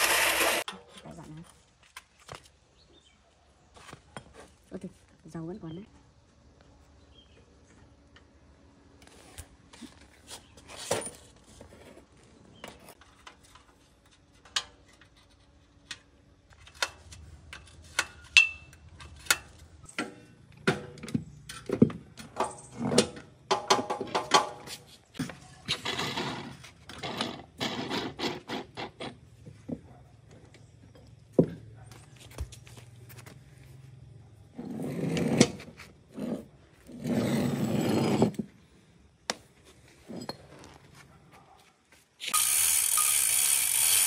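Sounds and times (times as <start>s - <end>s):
tools clattering and rattling: 16.5s - 31.5s, 39.9s - 41.0s.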